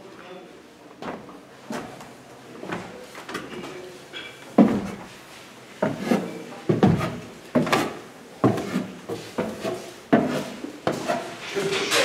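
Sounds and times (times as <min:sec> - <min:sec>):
footsteps on wooden stairs: 0:05.8 - 0:11.2.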